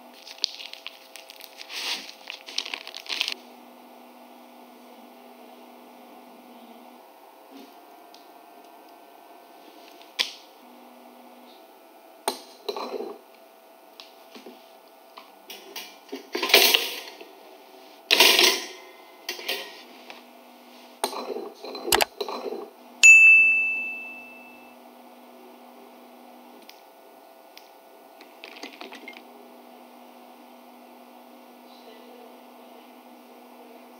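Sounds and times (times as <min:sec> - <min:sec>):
rustling scrapes: 0:00.2 - 0:03.4
toaster bell ding: 0:23.0 - 0:24.7.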